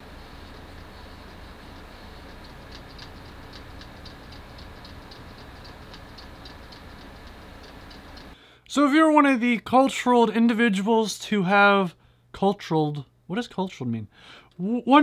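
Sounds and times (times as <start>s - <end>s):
computer humming: 0.0s - 8.4s
hard drive clicking: 0.5s - 8.4s.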